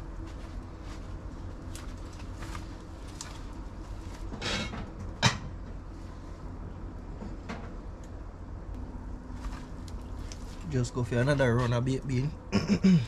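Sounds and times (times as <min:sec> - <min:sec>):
low steady background noise: 0:00.0 - 0:13.0
dishes and utensils handled: 0:04.3 - 0:05.5.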